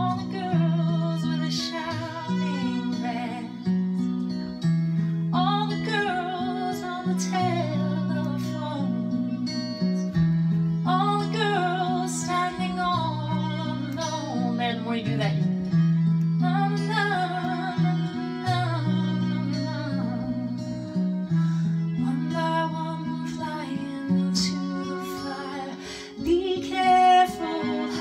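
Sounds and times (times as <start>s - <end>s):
acoustic guitar low notes: 0.0s - 28.0s.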